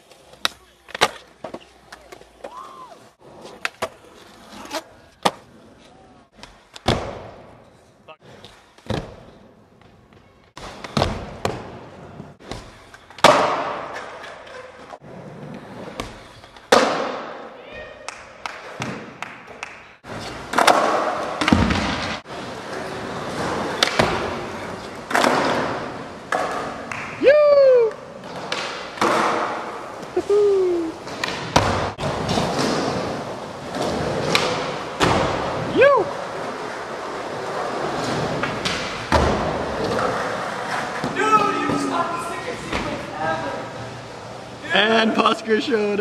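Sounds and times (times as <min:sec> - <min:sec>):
skateboard wheels rolling: 0:00.0 - 0:07.0, 0:07.6 - 0:17.4, 0:19.6 - 0:44.7
person whooping: 0:02.5 - 0:03.1, 0:27.2 - 0:28.1, 0:30.2 - 0:31.0
skateboard pops and landings: 0:12.4 - 0:14.0, 0:20.5 - 0:22.2.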